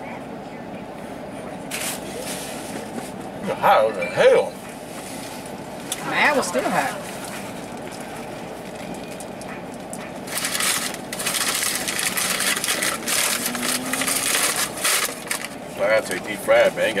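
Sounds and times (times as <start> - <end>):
steady low hum: 0.0 - 17.0
paper bag crinkling: 10.3 - 15.6.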